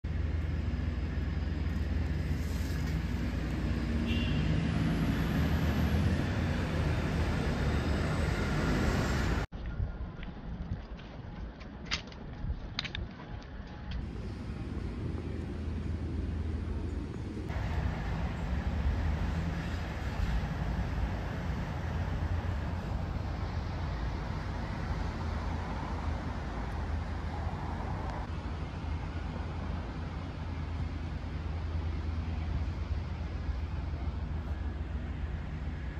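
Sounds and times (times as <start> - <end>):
faint engine hum: 0.0 - 9.5, 13.2 - 35.9
city traffic rumble: 0.0 - 35.9.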